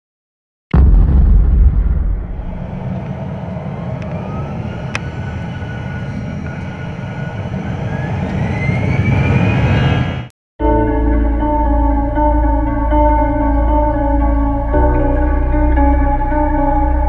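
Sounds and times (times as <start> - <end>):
jet engine rumble: 0.8 - 10.3
jet engine whine rising: 1.8 - 10.3.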